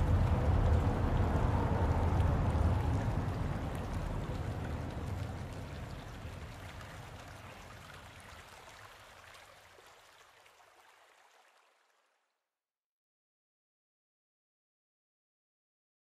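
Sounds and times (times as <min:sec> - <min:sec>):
water rushing: 0:00.0 - 0:12.0.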